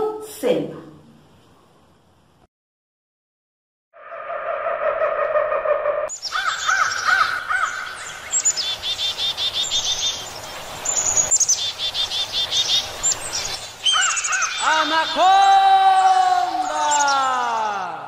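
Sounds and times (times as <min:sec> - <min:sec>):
birds chirping: 0:04.6 - 0:18.0.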